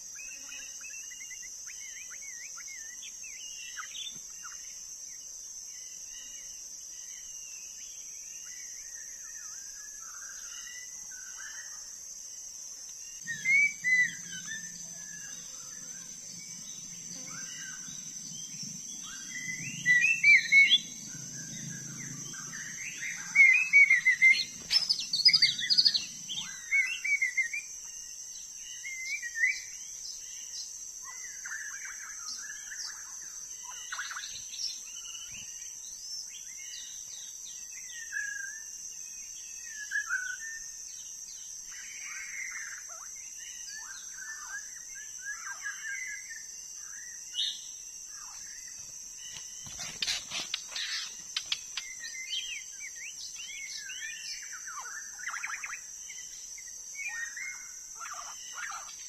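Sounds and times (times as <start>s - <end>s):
bird singing whistled phrases: 13.2s - 14.7s
steady high-pitched drone: 13.2s - 27.0s.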